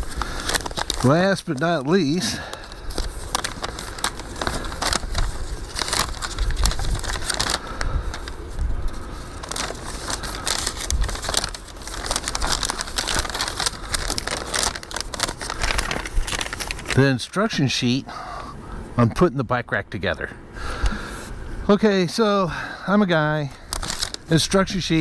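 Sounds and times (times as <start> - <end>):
paper rustling and crinkling: 0.0 - 17.2, 23.4 - 25.0.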